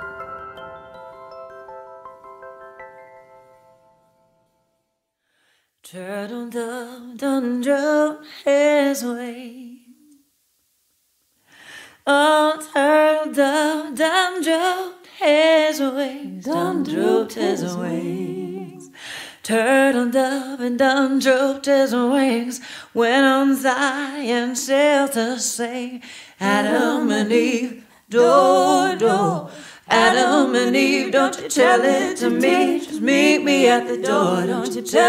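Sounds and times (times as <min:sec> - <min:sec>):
woman singing a cappella: 0:05.8 - 0:10.2, 0:12.0 - 0:35.0.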